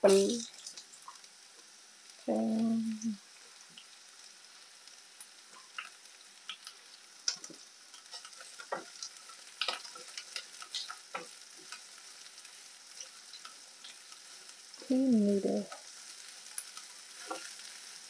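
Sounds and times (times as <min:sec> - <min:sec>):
vegetables sizzling in oil: 0:00.0 - 0:18.0
person humming: 0:02.3 - 0:03.2, 0:14.8 - 0:15.7.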